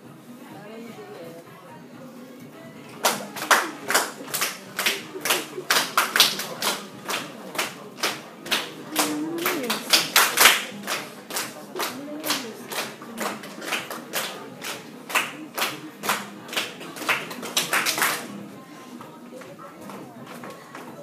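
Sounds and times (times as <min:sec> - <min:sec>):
hands clapping in rhythm: 0:02.9 - 0:18.5
person's voice: 0:08.7 - 0:09.9.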